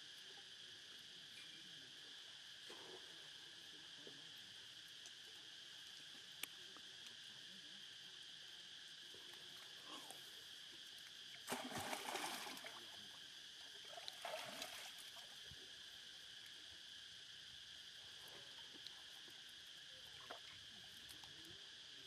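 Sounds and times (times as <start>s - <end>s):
insects droning: 0.0s - 22.0s.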